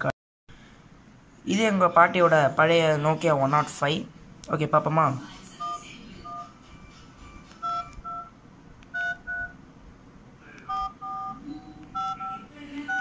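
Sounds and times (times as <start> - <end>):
phone keypad beeps: 5.6 - 6.6, 7.6 - 8.3, 8.9 - 9.6, 10.6 - 13.0.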